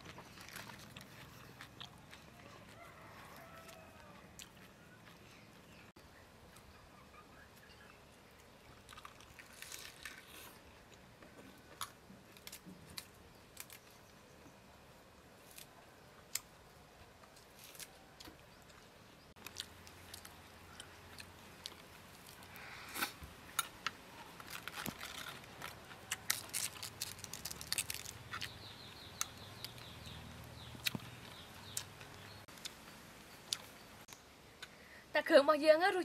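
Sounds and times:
cabbage leaves crackling: 0.0s - 5.2s, 8.8s - 10.8s, 17.2s - 18.8s, 19.4s - 34.2s.

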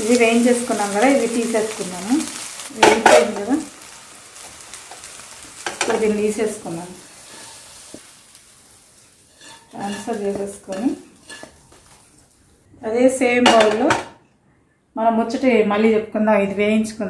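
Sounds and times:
food frying in oil: 0.0s - 12.7s
metal spatula scraping pan: 7.2s - 8.0s, 9.2s - 12.2s
food scraped onto steel plate: 9.3s - 11.7s.

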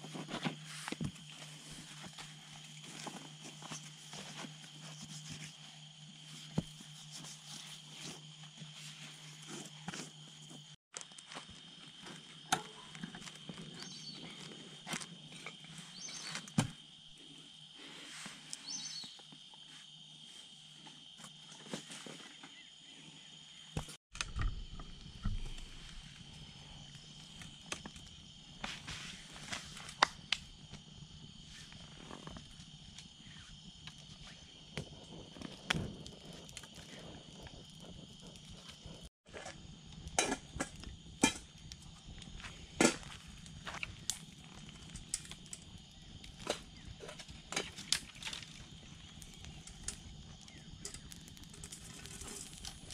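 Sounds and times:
insect trill: 0.0s - 52.9s
campfire crackling: 24.7s - 52.9s.

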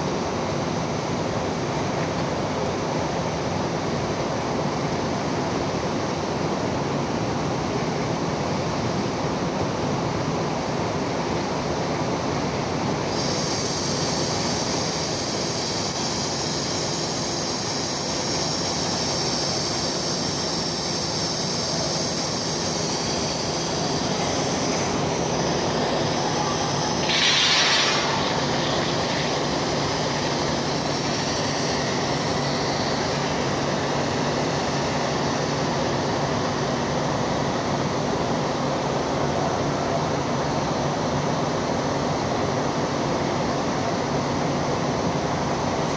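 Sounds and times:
high hiss and screech: 13.1s - 36.6s
loud rushing noise: 23.7s - 31.6s.

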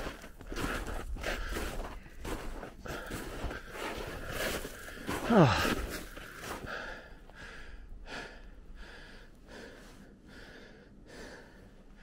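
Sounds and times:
footsteps in deep snow: 0.0s - 7.3s
person breathing hard: 0.5s - 12.0s.

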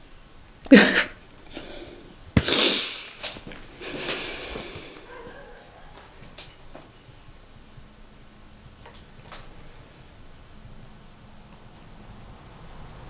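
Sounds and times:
woman sighing: 0.7s - 3.0s
woman sniffling: 0.7s - 3.2s, 3.8s - 5.5s
woman breathing hard: 0.7s - 5.4s.

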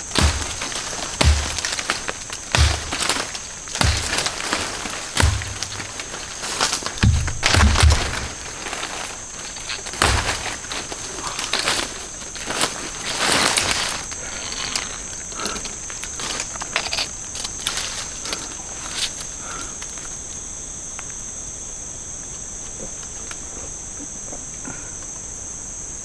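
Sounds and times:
footsteps through leaf litter: 0.0s - 15.2s
high-pitched insect drone: 0.0s - 26.0s.

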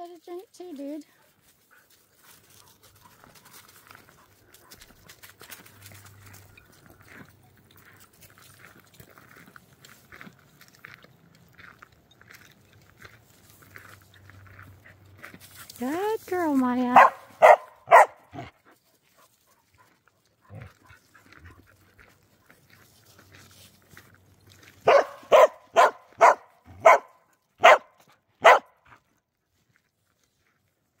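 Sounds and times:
dog barking: 17.0s - 18.5s, 24.8s - 28.8s.

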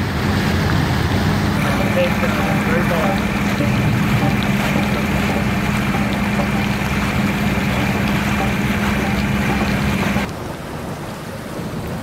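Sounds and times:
constant low hum: 0.0s - 10.6s
water rushing from manhole: 0.0s - 12.0s.

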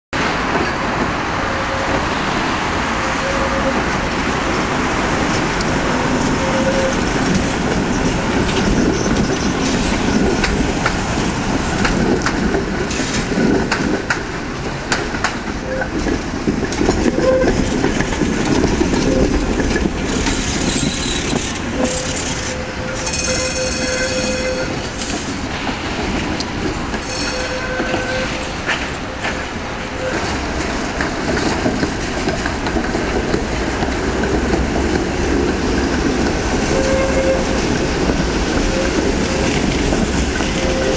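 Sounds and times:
trams rumbling past: 0.2s - 40.9s
wheels clicking over rail joints: 5.0s - 40.9s
high-pitched wheel squeal: 5.8s - 7.4s, 18.9s - 25.6s, 27.0s - 30.3s.

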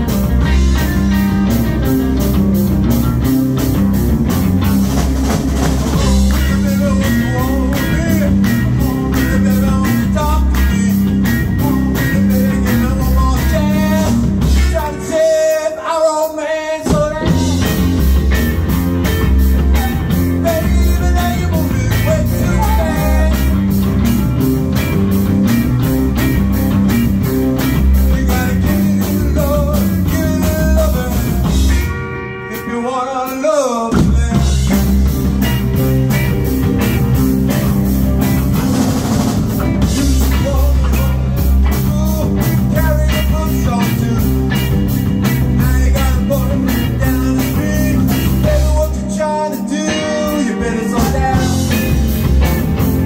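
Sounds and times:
electric bass: 0.0s - 15.5s, 16.8s - 53.0s
drum kit: 0.0s - 53.0s
electric guitar: 0.0s - 53.0s.

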